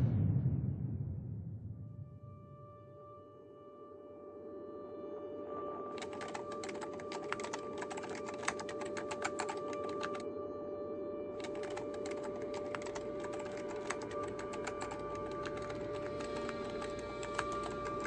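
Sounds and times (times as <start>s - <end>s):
keyboard typing clicks: 6.0s - 10.2s, 11.4s - 18.0s.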